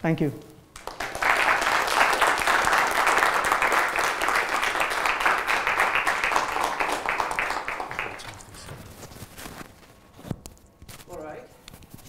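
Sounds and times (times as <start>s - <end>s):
audience applauding: 0.8s - 8.6s.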